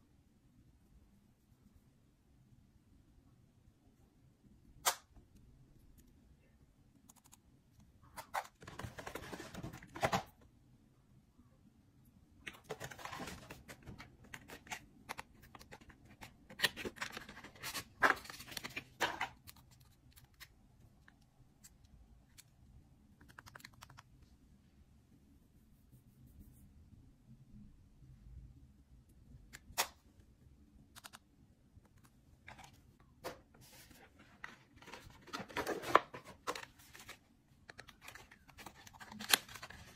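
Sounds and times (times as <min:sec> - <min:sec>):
cardboard boxes rustling: 0:08.6 - 0:10.3, 0:33.6 - 0:37.2.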